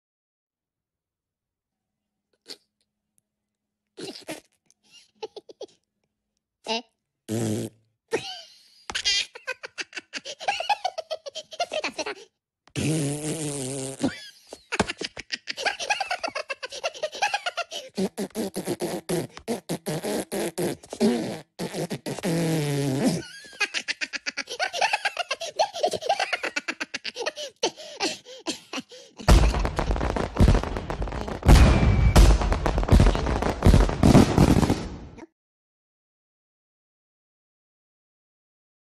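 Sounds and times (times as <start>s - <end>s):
fart noises: 4.0s - 4.6s, 7.3s - 7.9s, 12.7s - 14.2s, 17.9s - 23.3s
crackling fireworks: 29.2s - 35.2s.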